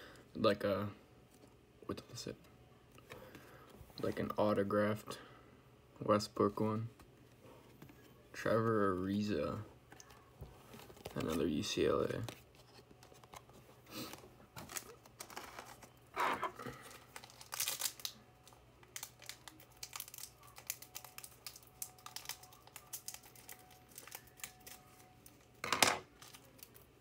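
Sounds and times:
wrapper crinkling and rustling: 9.9 - 27.0
wrapper ripping: 14.6 - 15.9, 16.7 - 26.9.

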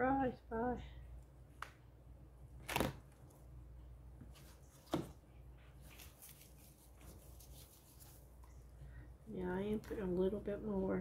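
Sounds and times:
low steady hum: 0.0 - 11.0
gloved hands rustling: 4.2 - 8.8.

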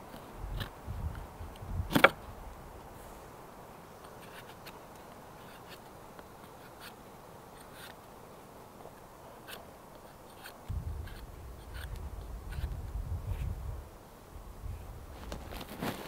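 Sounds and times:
knife scraping wood: 4.0 - 4.8, 5.4 - 8.0, 9.4 - 12.8.

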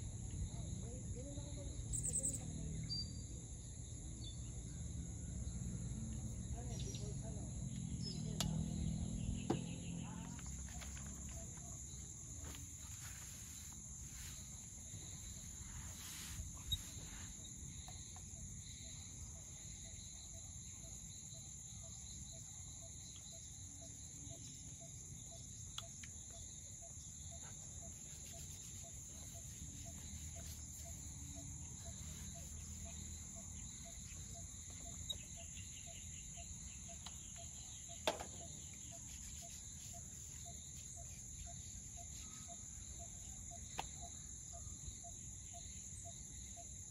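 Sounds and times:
crickets and insects chirring: 0.0 - 46.9
faint regular chirp: 15.3 - 19.0, 24.3 - 46.1.

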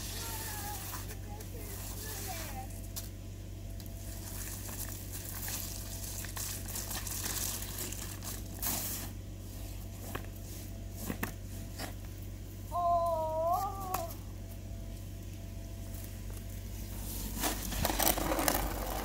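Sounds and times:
plastic sled scraping over slush: 17.0 - 19.0.

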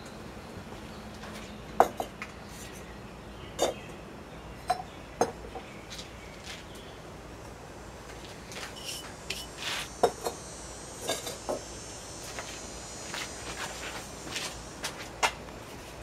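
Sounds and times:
pottery clinking and knocking: 1.8 - 2.1, 3.6 - 3.8, 4.7 - 5.6, 11.0 - 11.6.

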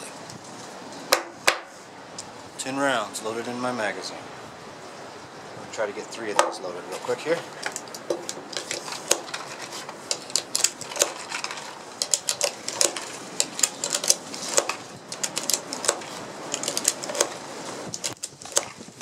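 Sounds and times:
magazine loader clicking: 12.0 - 16.0.

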